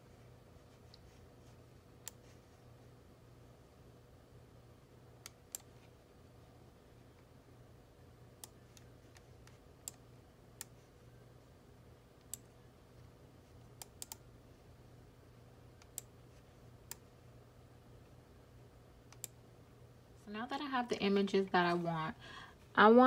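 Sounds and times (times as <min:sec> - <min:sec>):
faint steady hum: 0:00.0 - 0:23.0
computer mouse clicks: 0:02.0 - 0:02.3, 0:05.2 - 0:05.7, 0:08.4 - 0:10.0, 0:12.2 - 0:12.5, 0:13.8 - 0:14.2, 0:15.8 - 0:16.1, 0:19.1 - 0:19.4.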